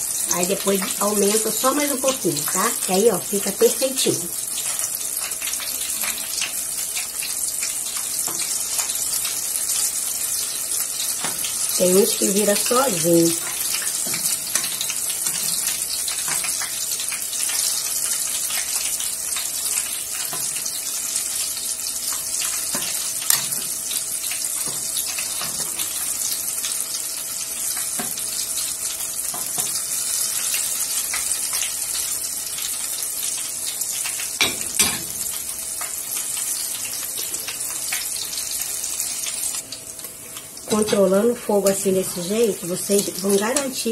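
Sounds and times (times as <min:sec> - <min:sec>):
batter frying in hot oil: 0:00.0 - 0:43.9.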